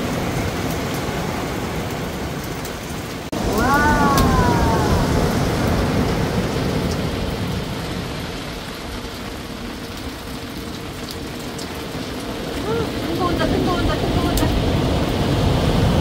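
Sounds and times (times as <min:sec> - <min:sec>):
ocean wave breaking: 0:03.3 - 0:08.7.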